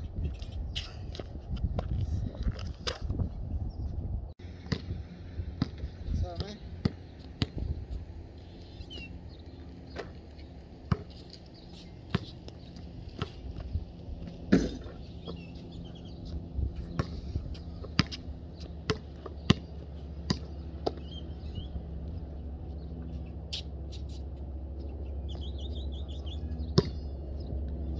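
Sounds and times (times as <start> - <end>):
birds chirping: 3.5 - 27.9
basketball bouncing on concrete: 4.6 - 5.0, 5.6 - 5.8, 6.4 - 7.7, 10.8 - 11.2, 12.1 - 21.2, 26.7 - 27.8
ball hitting basketball rim: 14.5 - 15.0.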